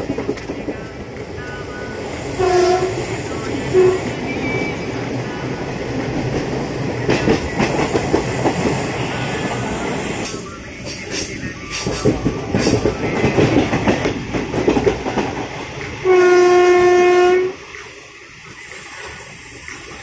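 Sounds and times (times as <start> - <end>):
train wheels clattering on rails: 0.0 - 20.0
brief pitched tone: 3.7 - 5.0.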